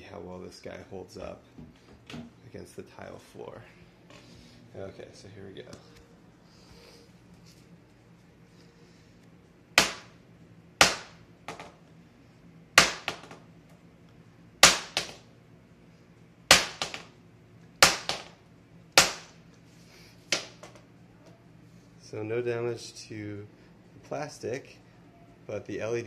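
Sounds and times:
plastic staff cracking on tile floor: 9.8 - 10.2, 12.8 - 13.4, 14.6 - 15.2, 16.5 - 17.1, 17.8 - 18.4, 19.0 - 19.4, 20.3 - 20.8.

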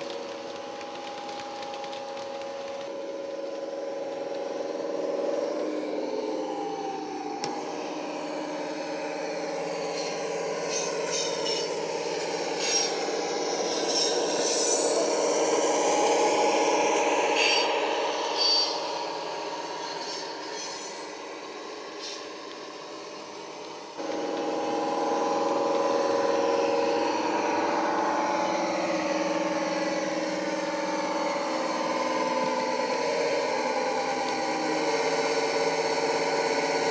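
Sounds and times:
model wheels clicking on rails: 0.0 - 4.5
diesel engine sound from small speaker: 24.0 - 36.9.

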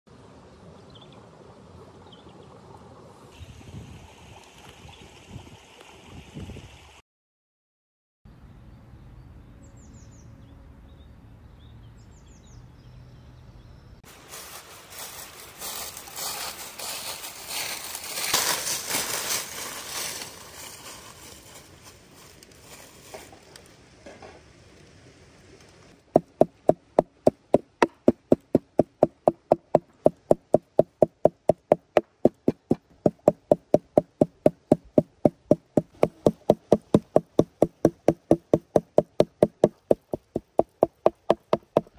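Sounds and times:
footsteps crunching through dry leaves: 14.1 - 23.4
cleaver chopping chicken on wooden board: 26.2 - 41.9.

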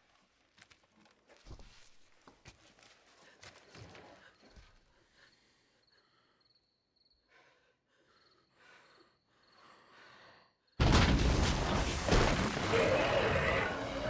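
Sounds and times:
soft breaths and sighs: 2.7 - 10.8
insects chirping: 3.2 - 10.8.

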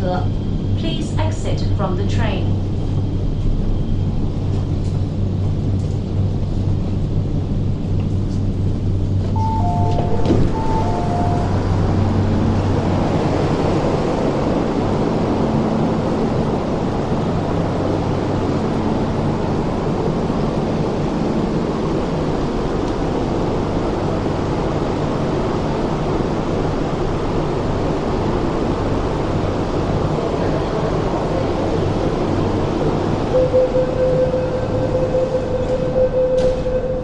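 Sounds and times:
constant low hum: 0.0 - 37.0
passengers walking: 0.9 - 37.0
two-tone door chime: 9.3 - 12.1, 33.4 - 37.0.

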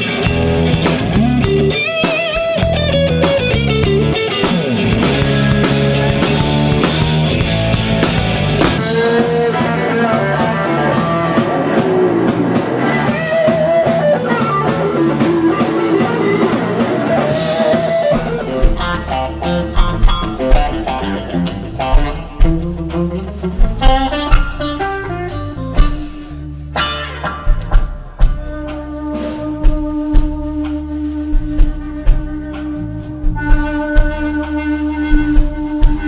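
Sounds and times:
blues-rock band playing: 0.0 - 36.0
electric guitar lead lines: 0.0 - 36.0
heavy accented low hits: 2.6 - 9.5, 17.9 - 34.4.

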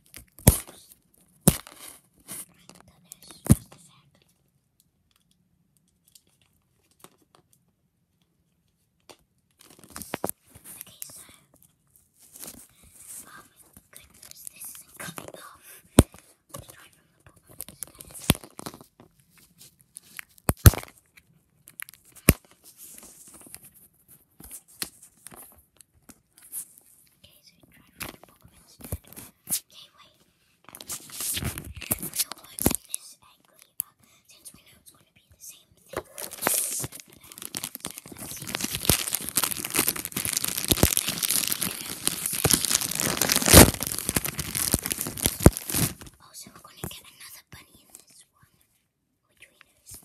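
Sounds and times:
packaging rustling and crinkling: 9.6 - 10.3, 36.0 - 46.2.

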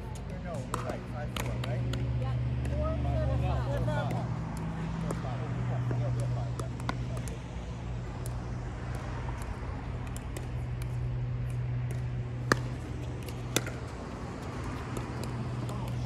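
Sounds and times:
paddle striking pickleball: 0.6 - 2.0, 6.5 - 7.4, 8.2 - 16.0.

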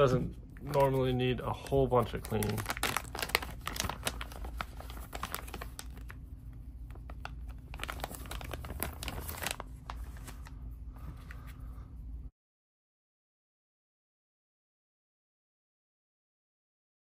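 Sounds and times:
plastic bag crinkling: 0.6 - 10.6.

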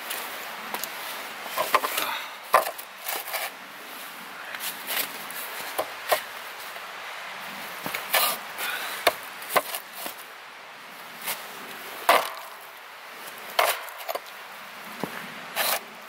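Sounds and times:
axe chopping wood: 9.0 - 9.8, 12.1 - 12.5, 13.6 - 14.2.

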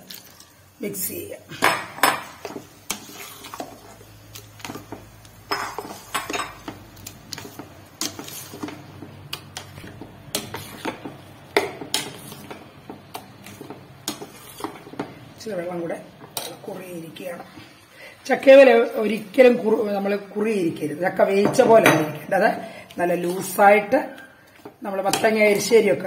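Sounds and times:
metal spoon scraping a pot: 2.9 - 4.0, 7.4 - 11.2, 11.8 - 12.6, 13.2 - 15.0.

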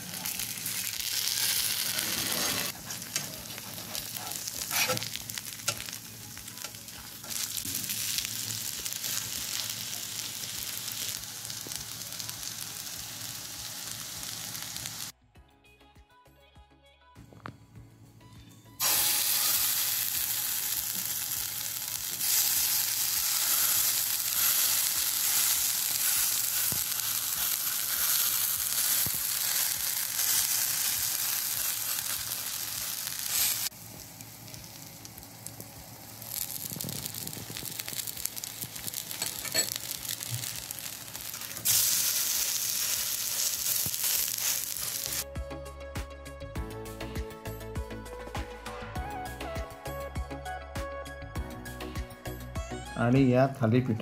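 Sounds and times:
dough sizzling in oil: 0.0 - 15.1, 18.8 - 45.2.

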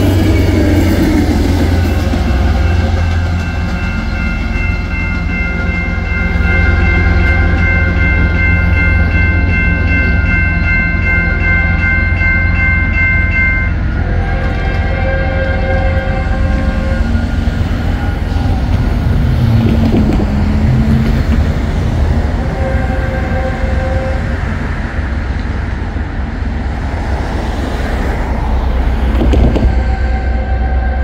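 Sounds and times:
train horn blasts: 0.0 - 9.0, 10.9 - 19.6, 22.2 - 24.7, 29.2 - 31.0.

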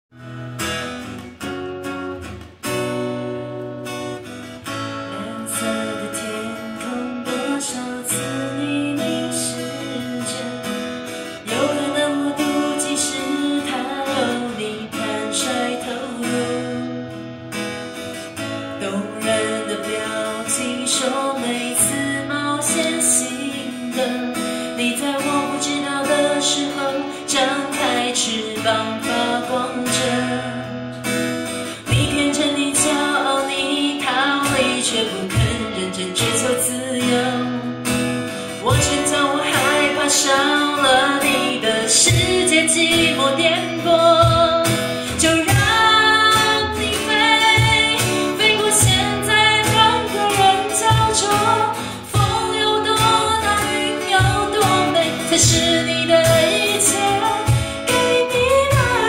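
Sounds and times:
acoustic guitar strumming: 0.1 - 59.0
cajon beat: 0.3 - 5.1, 31.0 - 59.0
woman singing: 2.8 - 59.0.

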